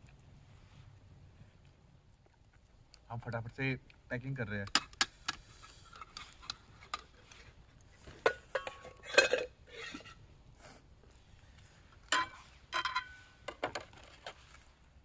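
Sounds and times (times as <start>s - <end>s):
plates and utensils clattering: 8.1s - 10.2s, 12.1s - 14.3s.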